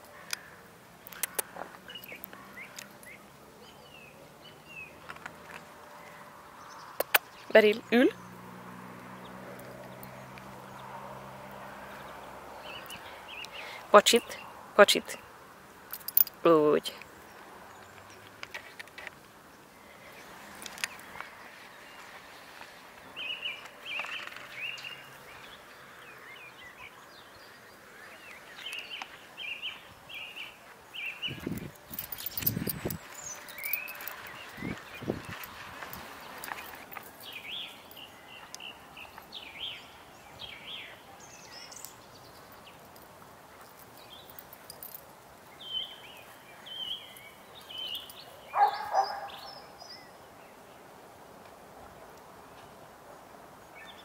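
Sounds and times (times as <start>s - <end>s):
outdoor background hiss: 0.0s - 54.0s
songbird singing: 0.0s - 54.0s
sharp clicks: 1.0s - 3.0s.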